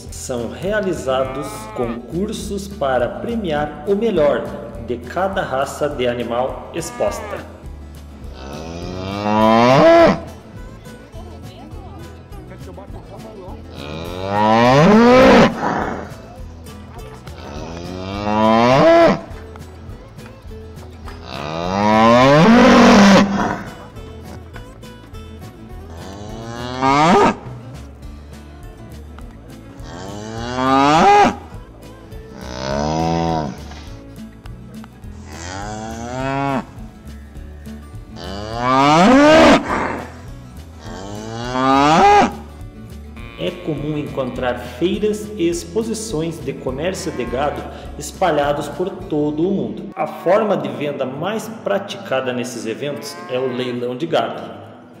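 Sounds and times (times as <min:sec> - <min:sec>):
cattle mooing: 0:01.1 - 0:02.0, 0:06.7 - 0:07.6, 0:08.3 - 0:10.3, 0:13.8 - 0:16.2, 0:17.4 - 0:19.4, 0:21.3 - 0:24.0, 0:25.8 - 0:27.6, 0:29.8 - 0:31.5, 0:32.4 - 0:33.9, 0:35.2 - 0:36.8, 0:38.2 - 0:40.2, 0:40.8 - 0:42.4, 0:43.2 - 0:44.7, 0:46.9 - 0:47.8, 0:52.9 - 0:53.8.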